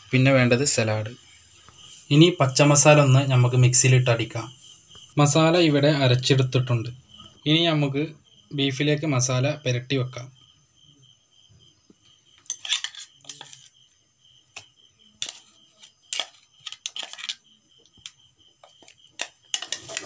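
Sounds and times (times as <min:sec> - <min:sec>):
metal spoon scraping a pot: 0:12.4 - 0:13.8, 0:15.2 - 0:17.4, 0:18.7 - 0:20.0.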